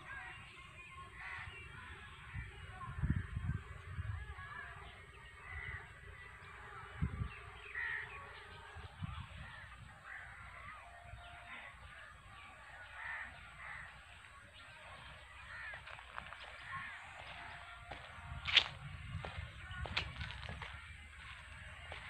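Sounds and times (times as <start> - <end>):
crows cawing: 1.2 - 1.5, 4.4 - 6.6, 7.6 - 22.0
small birds chirping: 4.4 - 22.0.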